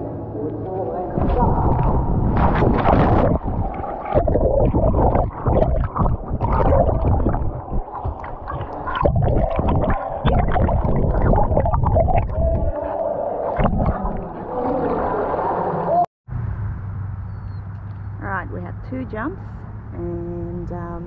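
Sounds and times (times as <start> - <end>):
muffled underwater water gurgling: 1.1 - 15.9.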